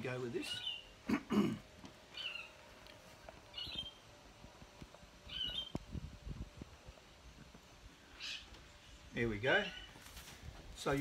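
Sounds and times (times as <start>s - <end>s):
bird chirping: 0.4s - 1.0s, 2.1s - 2.7s, 3.5s - 4.2s, 5.2s - 5.8s, 7.6s - 10.0s.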